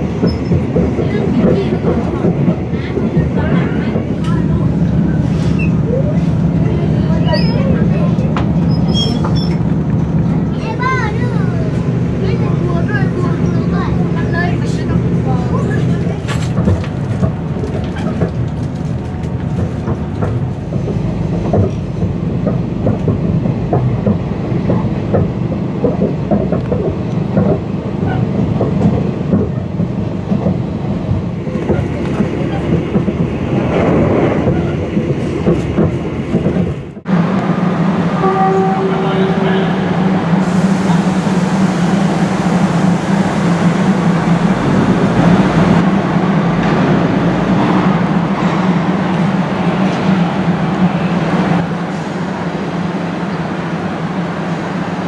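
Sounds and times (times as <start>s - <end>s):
train rumbling on rails: 0.0s - 55.0s.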